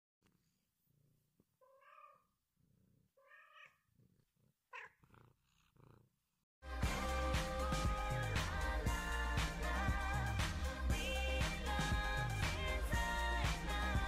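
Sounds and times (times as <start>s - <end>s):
cat purring: 0.4s - 6.2s
cat meowing: 1.6s - 2.4s, 3.2s - 3.9s, 4.7s - 5.2s
loud music: 6.6s - 14.0s.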